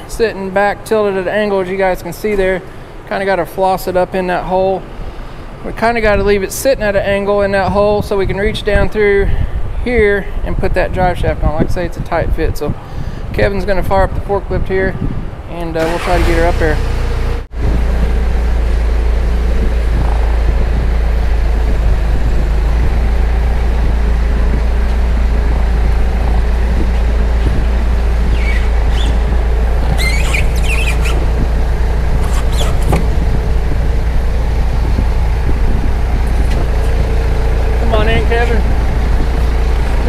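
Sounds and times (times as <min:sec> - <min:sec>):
forklift engine running: 0:15.8 - 0:40.0.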